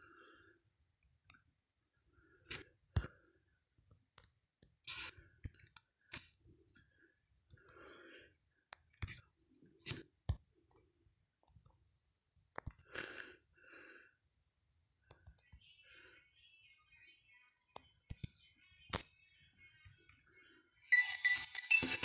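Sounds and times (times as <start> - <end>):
soft breathy whispering: 15.0 - 20.9.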